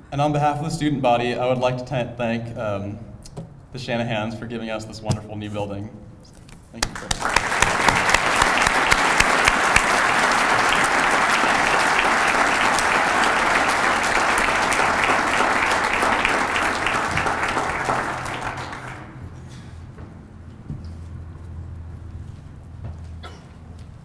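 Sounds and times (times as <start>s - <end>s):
audience applauding: 6.8s - 19.3s.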